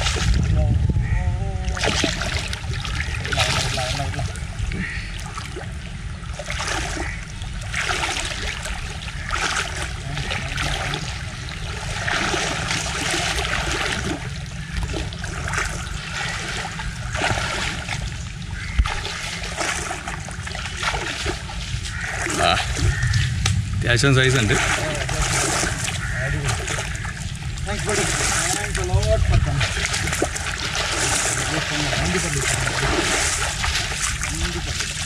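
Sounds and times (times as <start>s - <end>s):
river water churning: 1.6s - 23.4s, 24.0s - 35.0s
sharp splashes at water's edge: 1.6s - 23.6s, 24.2s - 35.0s.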